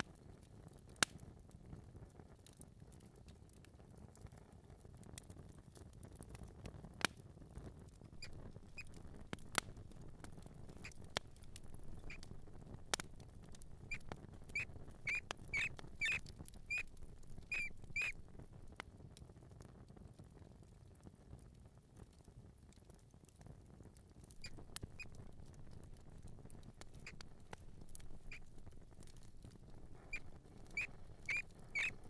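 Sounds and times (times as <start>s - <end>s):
mouse squeaking: 8.2s - 9.0s, 10.7s - 12.4s, 13.0s - 18.2s, 24.4s - 25.2s, 26.9s - 29.3s, 29.9s - 32.0s
mouse scratching: 13.0s - 18.2s, 29.8s - 32.0s.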